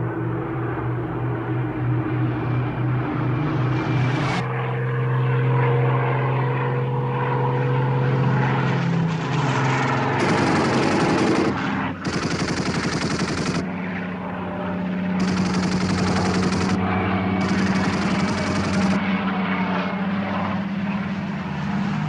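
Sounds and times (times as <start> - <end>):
piston aircraft engine drone: 0.0 - 22.0
machine-gun fire: 10.2 - 13.7, 15.2 - 16.8, 17.4 - 19.0.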